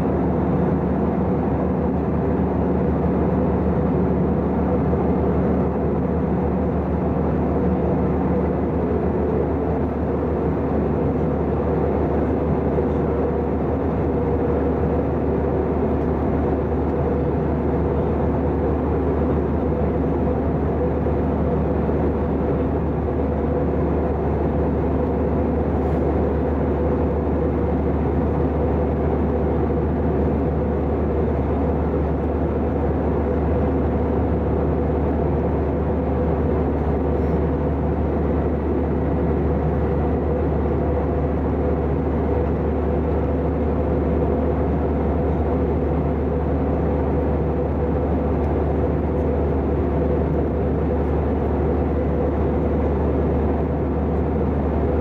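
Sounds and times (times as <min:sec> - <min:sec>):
aircraft cabin engine drone: 0:00.0 - 0:55.0.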